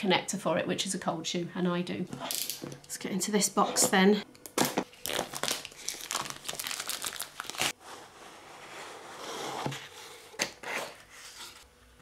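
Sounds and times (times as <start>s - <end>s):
cellophane crinkling and crackling: 4.8s - 7.8s
cardboard rustling and sliding: 7.7s - 11.6s.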